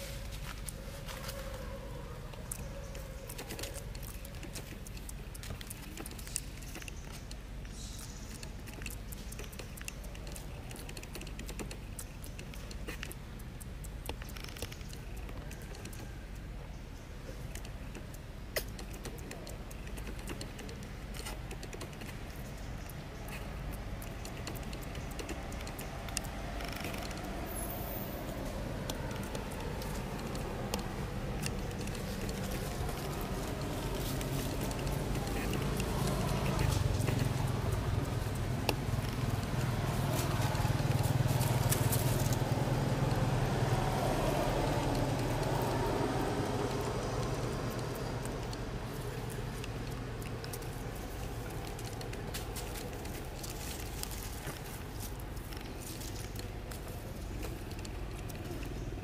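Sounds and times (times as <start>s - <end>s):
faint clicks: 2.3s - 59.0s
low motor hum: 22.2s - 59.0s.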